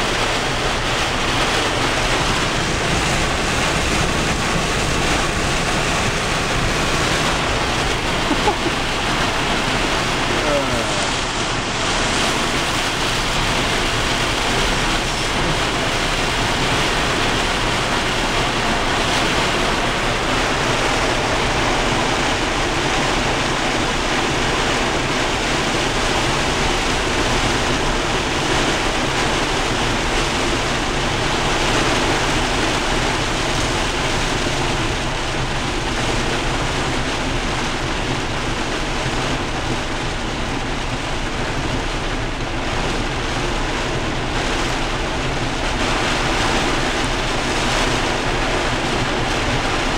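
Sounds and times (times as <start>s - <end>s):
heavy rain on vehicle: 0.0s - 49.9s
strong wind gusts: 0.0s - 49.9s.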